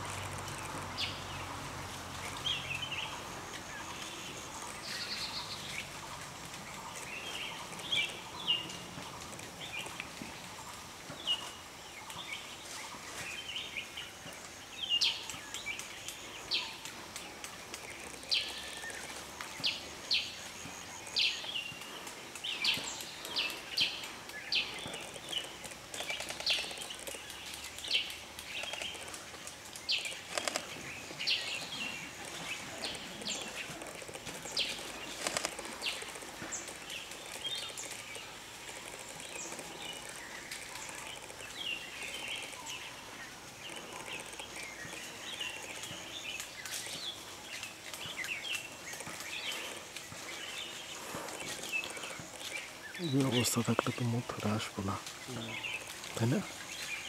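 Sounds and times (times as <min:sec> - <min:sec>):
birds calling: 0:00.0 - 0:57.0.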